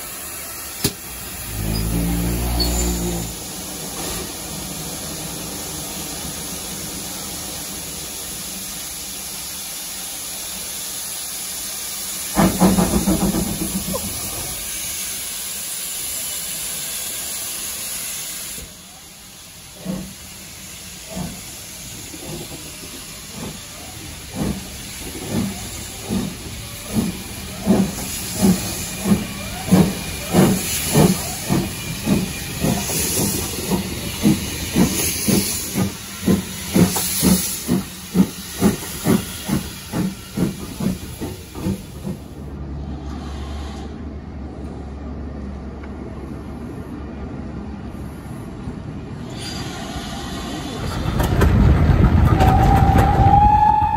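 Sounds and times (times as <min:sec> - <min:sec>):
steam burst: 0:00.0 - 0:42.4
steam locomotive exhaust beats: 0:00.0 - 0:44.0, 0:49.6 - 0:53.9
steam locomotive hissing: 0:00.0 - 0:44.1, 0:47.7 - 0:53.9.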